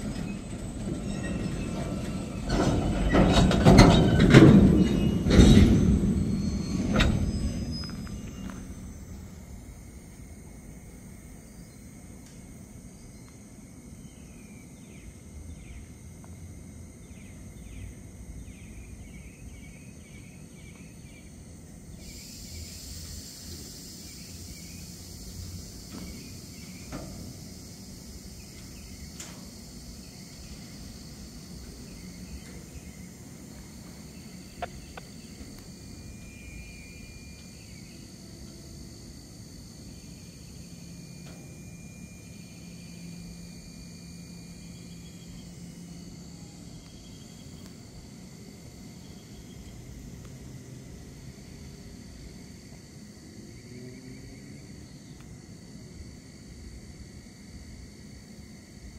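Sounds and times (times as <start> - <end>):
insects chirping: 0.0 - 58.9
steady high hiss: 4.5 - 17.4, 18.0 - 58.9.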